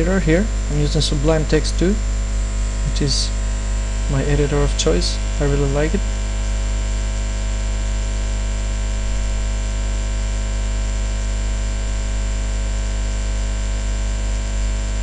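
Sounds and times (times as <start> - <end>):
recording hiss: 0.0 - 2.0, 2.8 - 3.4, 4.0 - 6.1
electrical mains hum: 0.0 - 15.0.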